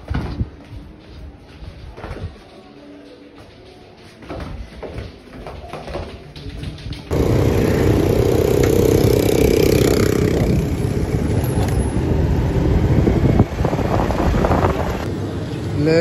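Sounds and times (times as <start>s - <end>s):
wind buffeting microphone: 7.1s - 15.1s
motorcycle riding: 7.1s - 15.7s.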